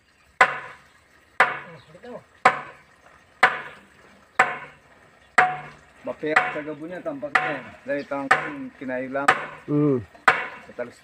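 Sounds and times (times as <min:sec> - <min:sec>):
sledgehammer striking wooden board: 0:00.4 - 0:00.8, 0:01.4 - 0:01.7, 0:02.4 - 0:02.8, 0:03.4 - 0:03.8, 0:04.4 - 0:04.8, 0:05.4 - 0:05.8, 0:06.4 - 0:06.7, 0:07.3 - 0:07.7, 0:08.3 - 0:08.7, 0:09.3 - 0:10.6.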